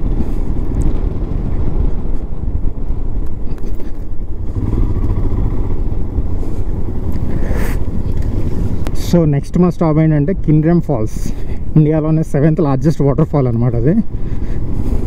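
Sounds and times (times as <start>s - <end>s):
motorcycle engine rumbling: 0.0s - 15.0s.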